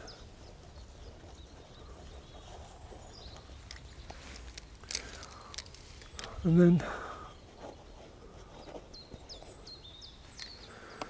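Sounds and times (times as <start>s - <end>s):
light rustles: 0.0s - 11.0s
faint clicks: 3.3s - 6.4s.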